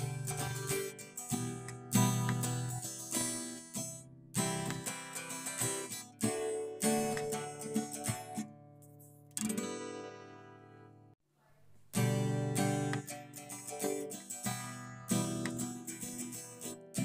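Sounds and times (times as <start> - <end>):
acoustic guitar strummed chords: 0.0 - 11.1, 11.9 - 17.0.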